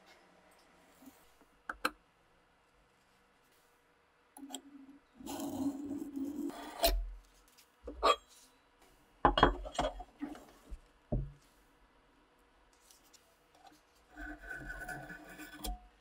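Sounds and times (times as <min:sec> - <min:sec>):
metal scraping on metal: 0:14.1 - 0:16.0.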